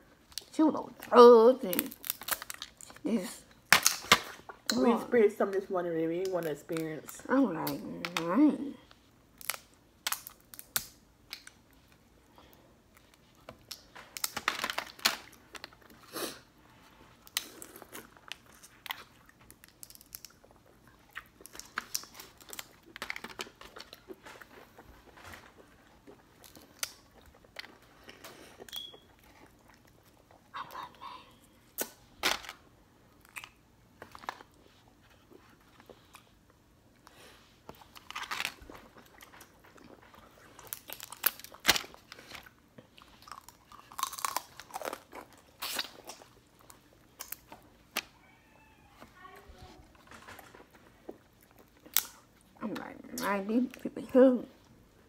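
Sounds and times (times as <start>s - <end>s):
seafood shells cracking: 1.8s - 2.9s, 9.3s - 11.6s, 17.3s - 20.6s, 40.6s - 42.4s, 51.8s - 52.3s
chewing: 17.1s - 31.0s, 33.2s - 48.2s.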